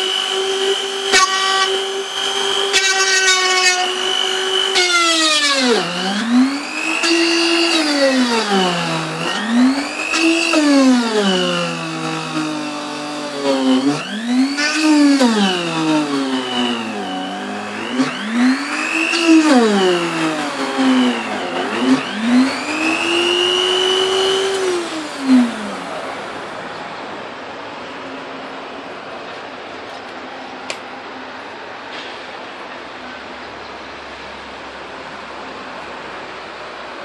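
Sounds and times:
electric drill boring into wood: 0:00.0 - 0:26.0.

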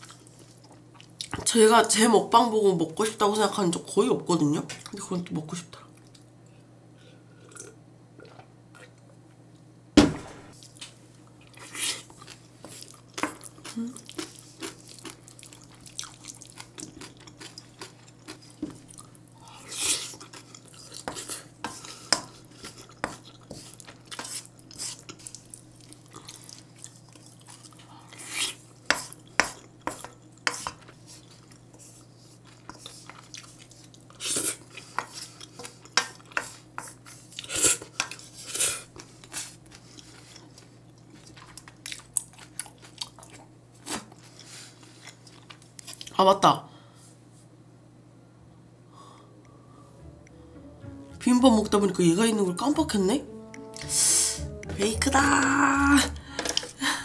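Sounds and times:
loud knock: 0:10.0 - 0:10.6
faint low hum: 0:46.7 - 0:57.0.

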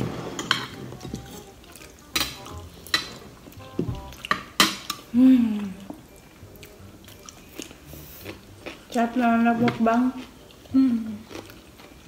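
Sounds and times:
cutlery clinking on plates: 0:00.2 - 0:01.5, 0:02.1 - 0:03.3, 0:04.2 - 0:05.1
person humming: 0:05.1 - 0:05.9, 0:10.7 - 0:11.2.

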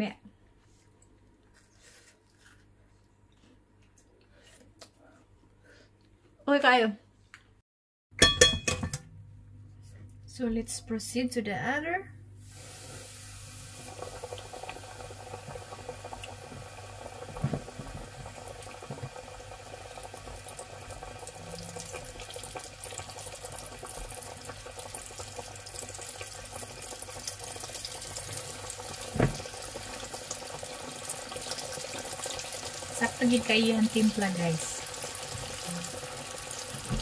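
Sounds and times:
wings deep-frying in oil: 0:12.4 - 0:37.0.

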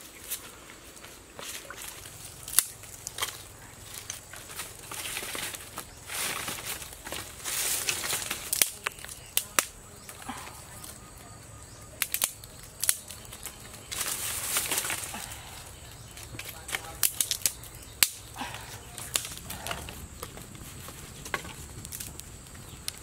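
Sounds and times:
dry leaves rustling: 0:00.0 - 0:23.0.

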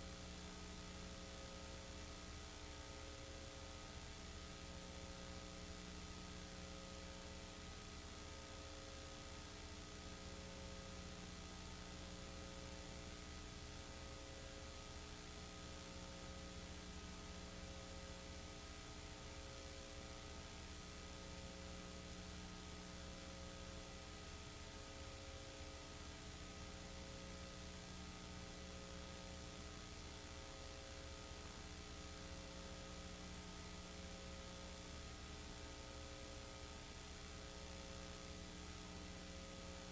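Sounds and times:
electrical hum: 0:00.0 - 0:39.9.

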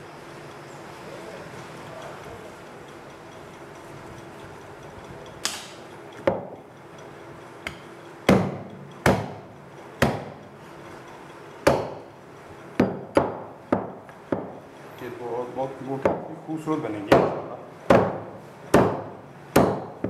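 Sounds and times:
knife chopping on wooden block: 0:08.3 - 0:09.4, 0:10.0 - 0:10.4, 0:11.7 - 0:12.0, 0:17.1 - 0:20.0.

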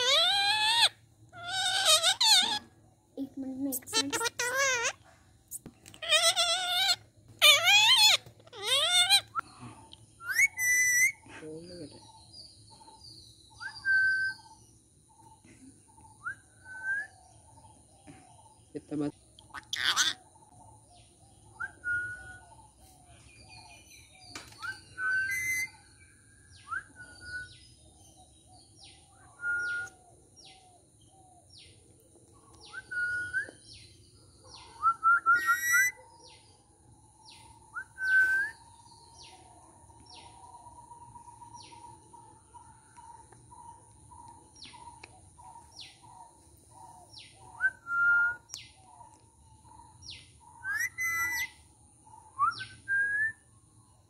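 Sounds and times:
parrot whistles and chirps: 0:10.2 - 0:11.2, 0:13.6 - 0:14.5, 0:21.6 - 0:22.4, 0:24.6 - 0:25.8, 0:26.6 - 0:27.6, 0:29.3 - 0:30.0, 0:32.7 - 0:33.6, 0:34.8 - 0:36.0, 0:37.7 - 0:38.6, 0:47.6 - 0:48.6, 0:50.6 - 0:51.6, 0:52.4 - 0:53.4.

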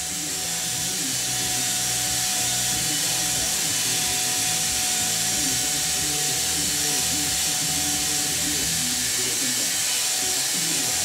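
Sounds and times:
cordless drill whining: 0:00.0 - 0:11.0.

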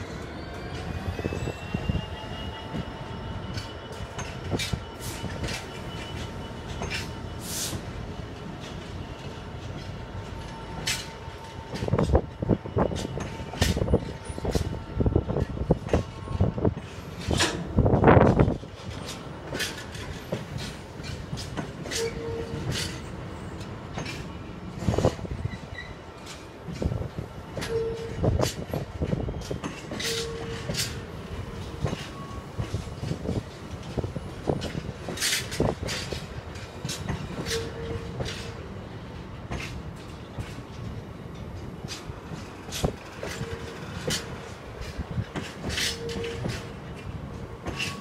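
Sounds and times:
train wheels clicking over rail joints: 0:02.6 - 0:48.0
wagon clanks and rattles: 0:15.4 - 0:23.2, 0:23.8 - 0:25.3, 0:26.2 - 0:38.6, 0:39.4 - 0:48.0.

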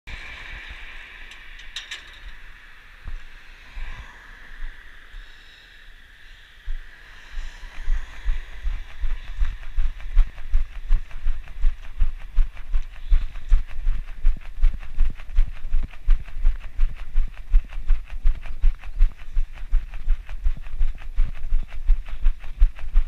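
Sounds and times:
steady hiss: 0:00.1 - 0:10.4.

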